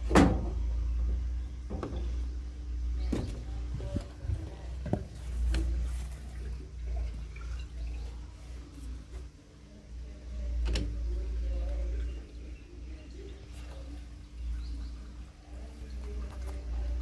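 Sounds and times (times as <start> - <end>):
washing machine low hum: 0.0 - 17.0
water draining: 6.3 - 8.3.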